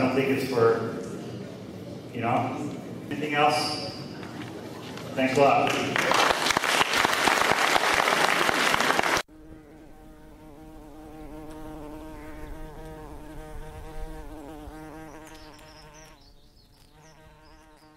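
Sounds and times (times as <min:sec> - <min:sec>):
audience applauding: 0:05.6 - 0:09.2
insect buzzing: 0:09.2 - 0:17.9.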